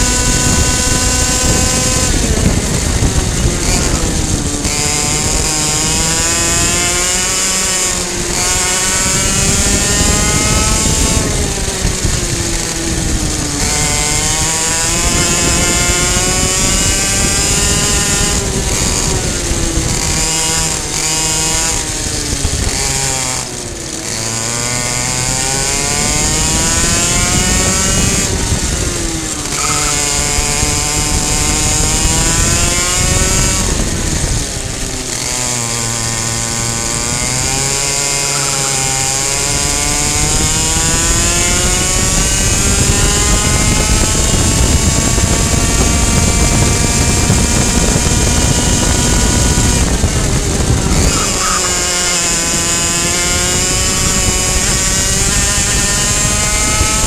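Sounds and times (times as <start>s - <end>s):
kart engine at high revs: 0.0s - 57.0s.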